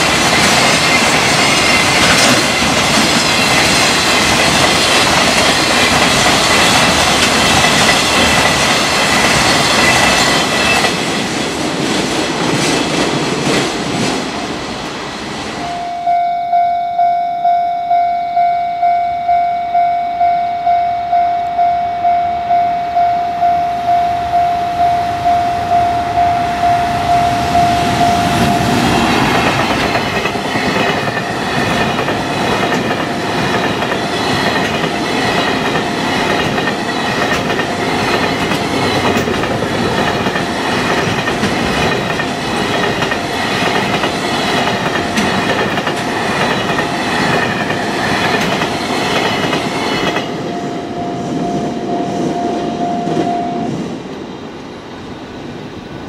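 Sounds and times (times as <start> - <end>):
train wheels clattering over rail joints: 0.0 - 14.3, 28.9 - 50.3
level crossing warning bell: 15.6 - 31.9, 49.4 - 53.8.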